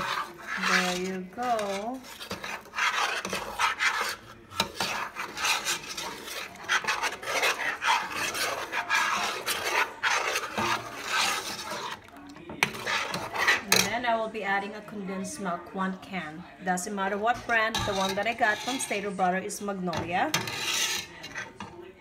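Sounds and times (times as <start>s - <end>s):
metal spoon scraping a pot: 0.0s - 15.7s, 16.8s - 22.0s.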